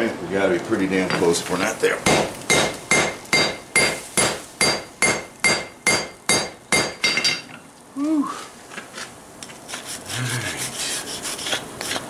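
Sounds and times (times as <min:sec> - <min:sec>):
hammer ringing on anvil: 0:02.5 - 0:07.4.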